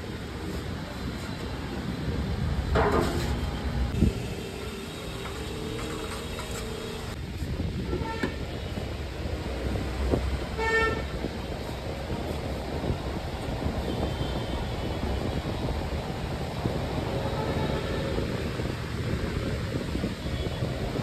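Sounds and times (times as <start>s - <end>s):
street traffic rumbling: 0.0s - 21.0s
vehicle horn honking: 10.6s - 11.1s.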